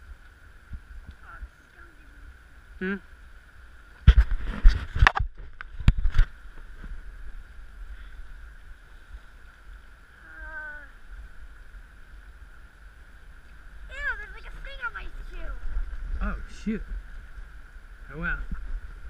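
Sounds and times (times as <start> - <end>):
river current: 0.0 - 19.0
person humming: 10.2 - 11.0.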